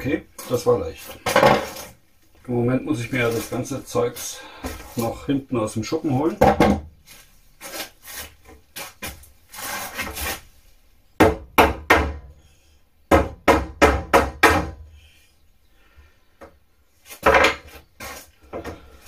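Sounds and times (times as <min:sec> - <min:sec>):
board scraping: 0:00.4 - 0:02.0, 0:07.6 - 0:10.5, 0:17.0 - 0:19.0.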